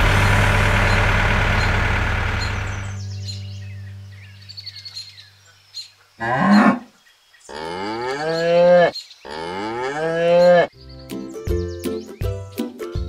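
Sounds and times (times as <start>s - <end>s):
cow mooing: 6.2s - 6.9s, 7.5s - 10.7s.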